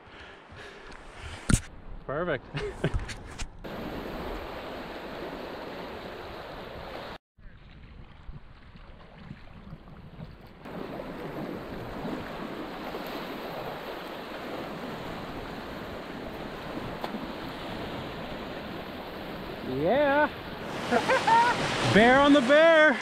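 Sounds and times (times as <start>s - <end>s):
river water rushing: 10.7s - 23.0s.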